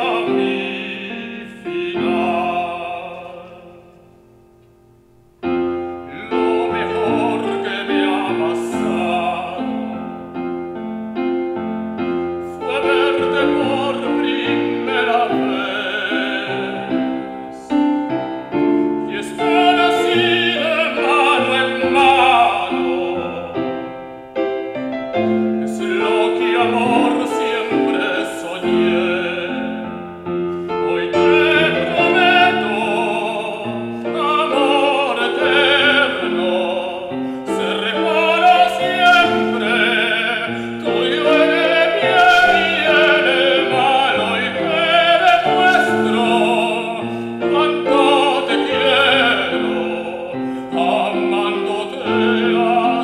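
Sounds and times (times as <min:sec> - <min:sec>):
tenor singing operatically: 0:00.0 - 0:04.0, 0:05.7 - 0:10.6, 0:12.4 - 0:53.0
keyboard piano accompaniment: 0:00.0 - 0:53.0.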